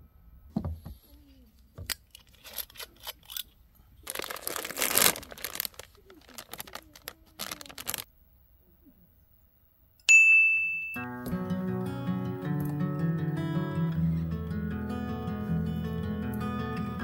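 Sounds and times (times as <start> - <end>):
crinkling tearing rustle: 2.0 - 8.1.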